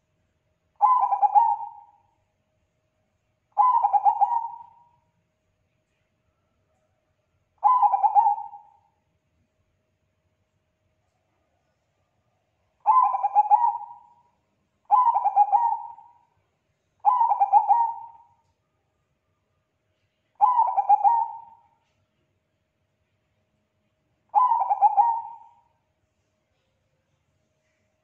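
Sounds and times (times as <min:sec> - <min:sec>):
dove cooing: 0:00.8 - 0:02.0, 0:03.6 - 0:04.9, 0:07.6 - 0:08.8, 0:12.8 - 0:14.2, 0:14.9 - 0:16.2, 0:17.0 - 0:18.4, 0:20.4 - 0:21.7, 0:24.3 - 0:25.7.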